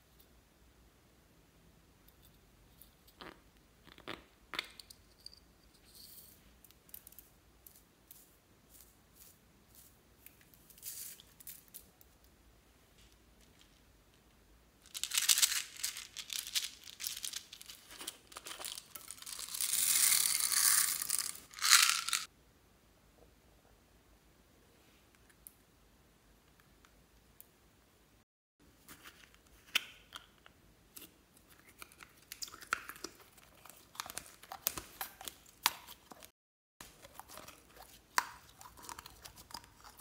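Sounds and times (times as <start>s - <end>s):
beads pouring and rattling: 14.8s - 22.3s.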